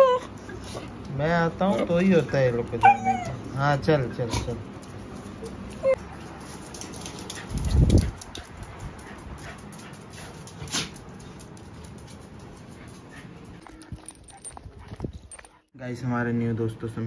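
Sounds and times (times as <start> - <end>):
dogs whimpering: 0.0 - 0.8, 2.7 - 3.6, 13.6 - 15.6
dogs scrambling: 6.3 - 15.7.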